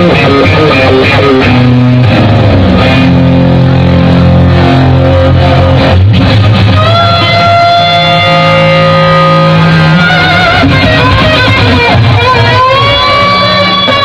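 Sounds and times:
electric guitar lead: 0.0s - 14.0s
live rock band: 0.0s - 14.0s.

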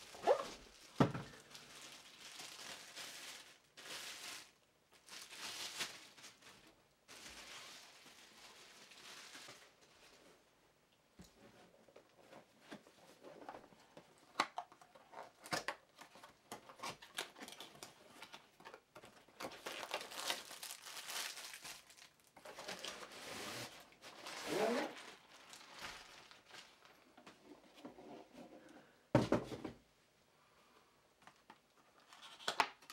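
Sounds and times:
plastic wrapping crinkling: 0.0s - 10.2s, 14.4s - 27.1s.

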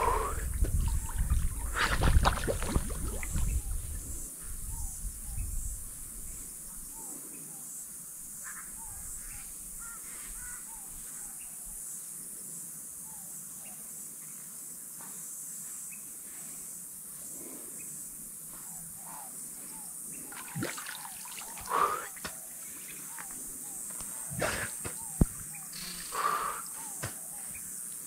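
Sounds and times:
faint bird chirps: 8.4s - 11.8s
steady high hiss: 19.3s - 28.0s.

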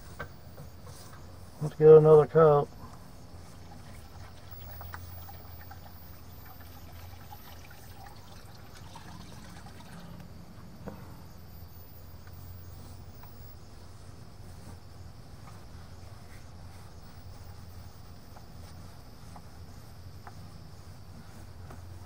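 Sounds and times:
steady low hum: 0.0s - 22.0s
fountain trickling: 3.6s - 10.2s.

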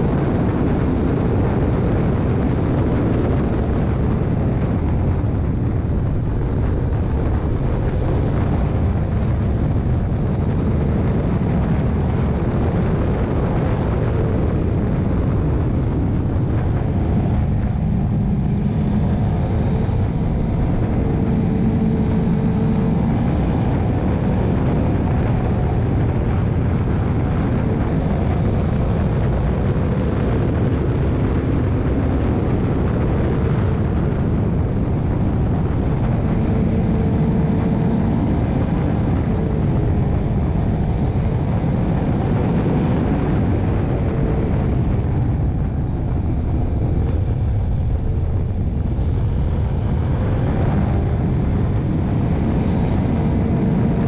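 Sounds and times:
motorcycle engine drone: 0.0s - 54.0s
wind and road noise: 0.0s - 54.0s.

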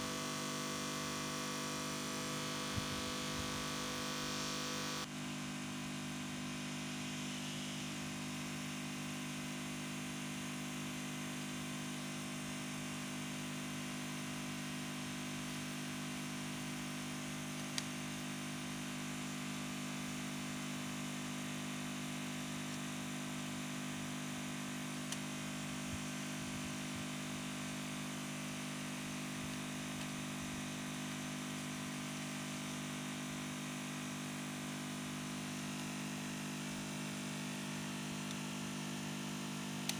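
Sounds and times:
steady low hum: 0.0s - 5.1s.

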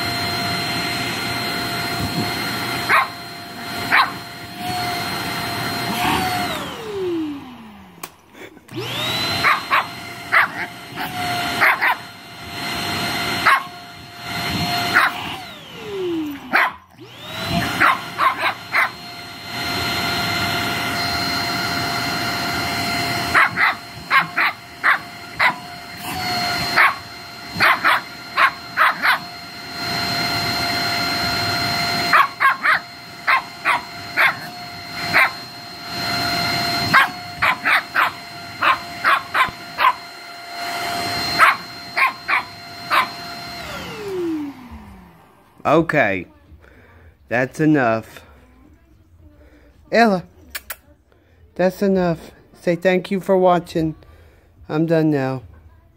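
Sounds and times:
vacuum cleaner motor whine: 0.0s - 50.3s, 51.6s - 55.8s
puppy barking and yipping: 2.5s - 5.0s, 9.1s - 12.2s, 13.3s - 15.5s, 16.3s - 19.2s, 23.1s - 29.4s, 31.9s - 35.5s, 36.8s - 43.3s.

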